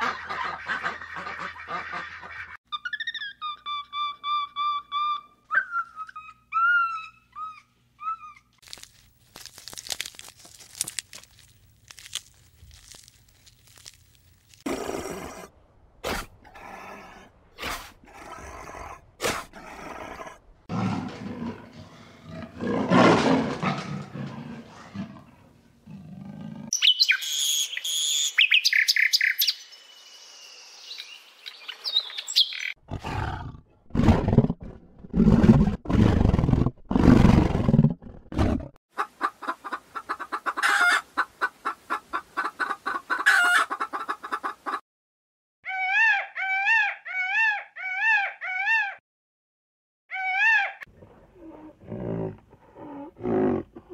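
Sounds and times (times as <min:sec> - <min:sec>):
bird whistles and trills: 0:02.7 - 0:08.4, 0:26.8 - 0:29.6.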